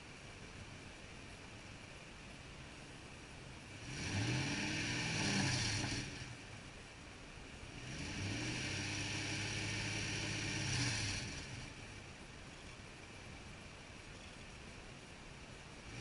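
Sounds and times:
truck engine revving: 3.7 - 6.5, 7.7 - 11.8
exhaust rush: 3.7 - 6.6, 7.6 - 12.2.

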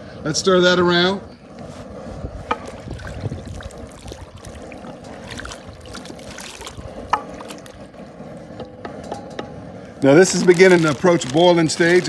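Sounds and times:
paddle stirring sloshing stock: 1.6 - 8.6.

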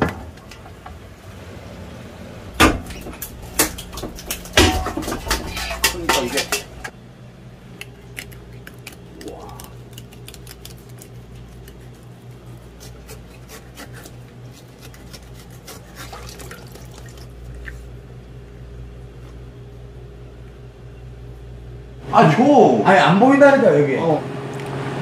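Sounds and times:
steady low hum: 0.0 - 25.0
knife clicks and wet scrapes: 2.8 - 6.9, 7.7 - 17.9.

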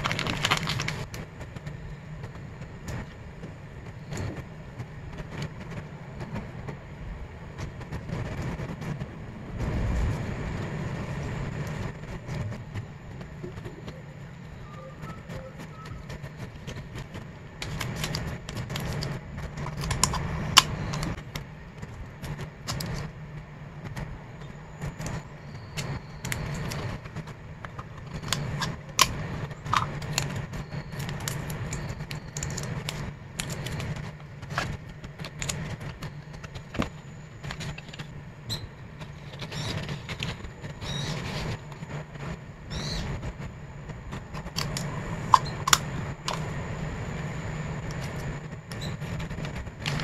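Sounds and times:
plastic sleeves and paper rustling: 0.0 - 3.2, 11.2 - 42.4, 47.8 - 50.0
steady low hum: 0.0 - 50.0
small clicks and snaps: 23.8 - 40.4.

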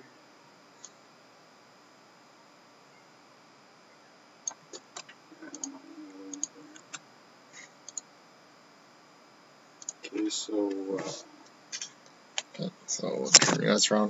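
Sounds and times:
computer mouse and keyboard clicks: 4.4 - 7.0
person humming low: 5.3 - 6.8.

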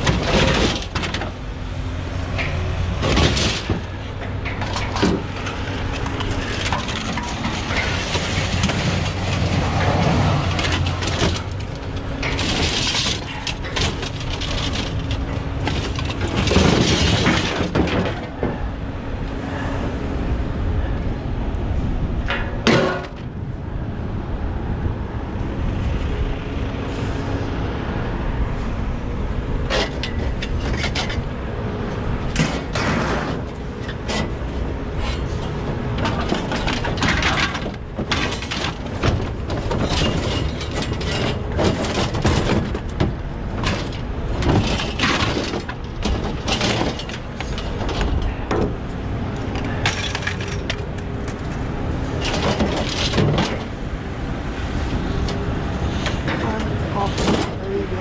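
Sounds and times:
scrap metal clanking and crashing: 0.0 - 18.8, 22.2 - 23.4, 29.3 - 58.0
steady low rumble: 0.0 - 58.0.

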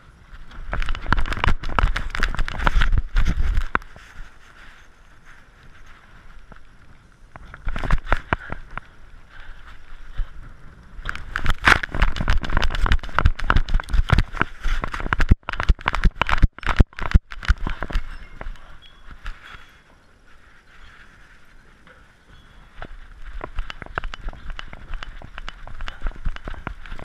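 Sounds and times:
camera knocking and scraping: 0.5 - 4.2, 7.4 - 8.9, 11.0 - 19.7, 22.8 - 27.0.

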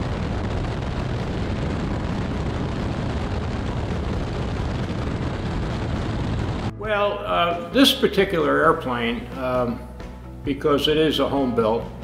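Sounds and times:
biplane engine rumble in flight: 0.0 - 6.9
wind rushing over microphone: 0.0 - 7.8.

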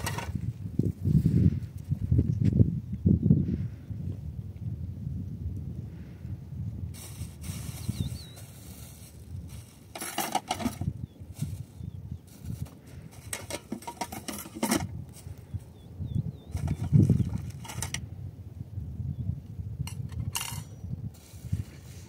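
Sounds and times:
dishes clattering in plastic basket: 0.0 - 0.4, 9.9 - 10.9, 12.6 - 14.9, 16.5 - 18.0, 19.9 - 20.7.

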